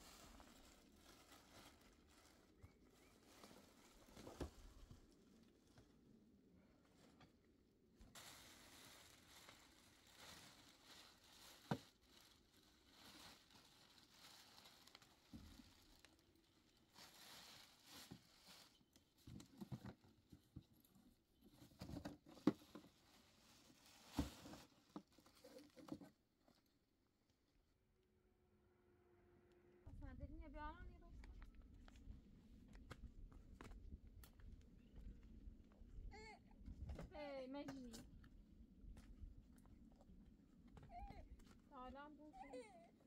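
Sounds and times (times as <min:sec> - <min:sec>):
plastic bag and cloth rustling: 0:00.0 - 0:06.1, 0:08.0 - 0:20.5, 0:21.6 - 0:26.1.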